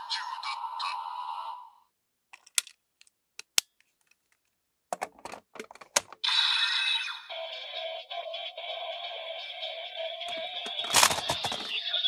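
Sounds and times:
plastic toy clicks and rattles: 10.6s - 11.8s.

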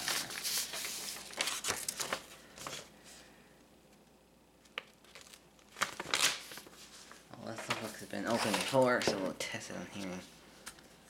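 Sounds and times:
paper envelope rustling: 0.0s - 2.9s, 4.6s - 9.2s.

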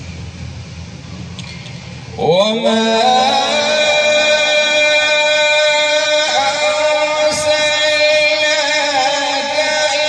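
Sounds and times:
man reciting melodically: 2.1s - 10.0s.

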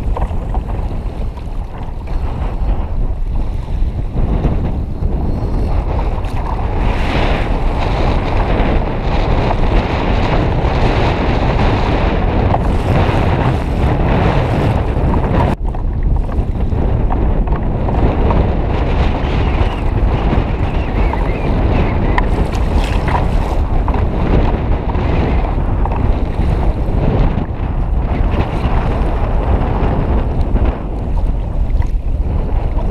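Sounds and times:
choppy sea water: 0.0s - 32.9s
heavy wind buffeting microphone: 0.0s - 32.9s.

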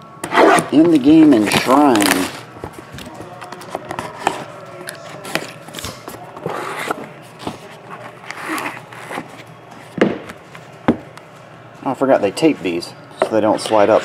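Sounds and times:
tape being peeled: 1.4s - 9.5s.

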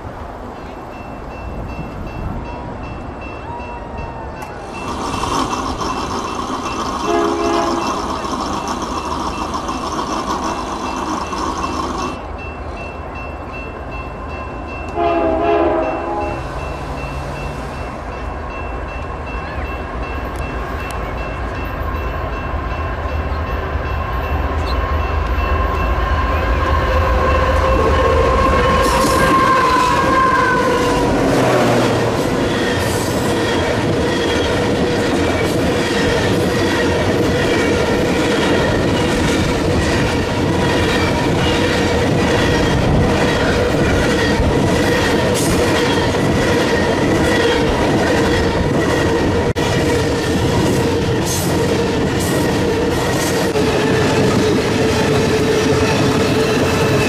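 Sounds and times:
locomotive engines rumbling: 0.0s - 57.0s
freight cars rattling: 4.5s - 12.4s
locomotive horn blasts: 7.0s - 8.1s, 14.9s - 16.6s, 26.2s - 32.2s.

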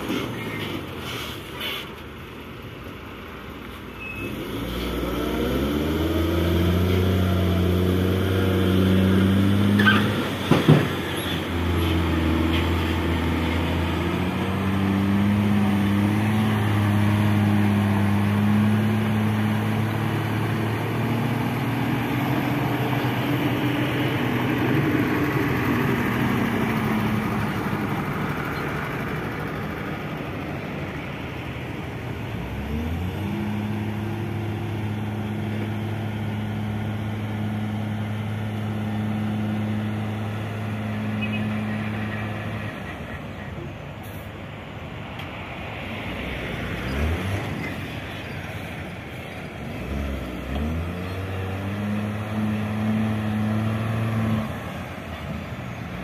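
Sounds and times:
truck diesel engine running: 10.2s - 44.9s.

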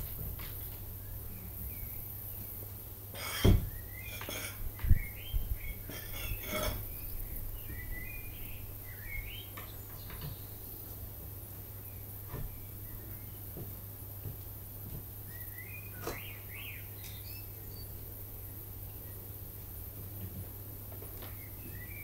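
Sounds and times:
birds chirping: 0.0s - 14.2s, 15.2s - 19.4s, 21.2s - 22.0s
door thumps: 3.4s - 3.7s.

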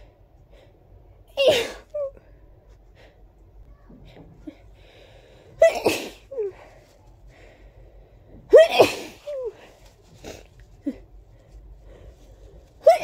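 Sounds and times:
person sneezing: 1.4s - 2.0s, 5.6s - 6.6s, 8.5s - 9.6s, 12.8s - 13.0s.

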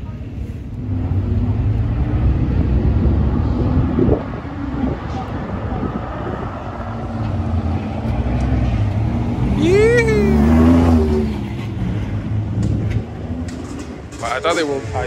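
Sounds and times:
pickup truck engine revving past: 6.4s - 13.5s.

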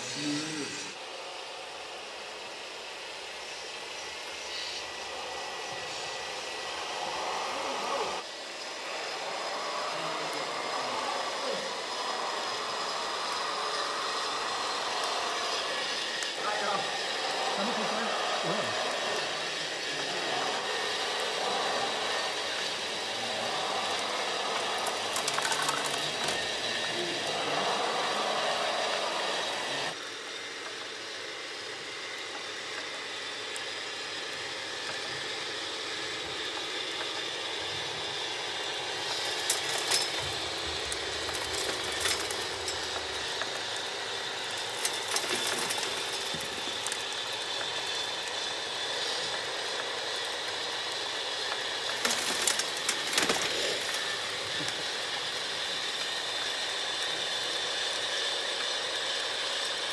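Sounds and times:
electric motor whine: 0.0s - 59.9s
soil and stones rattling: 24.6s - 26.5s, 39.0s - 48.3s, 51.8s - 54.4s.

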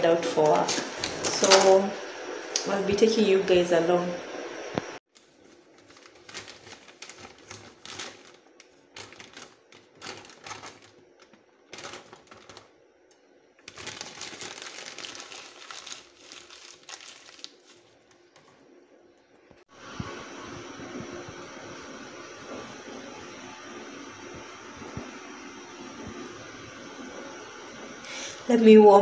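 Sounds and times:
paper wrapping crinkling: 5.1s - 12.8s, 13.6s - 18.7s.

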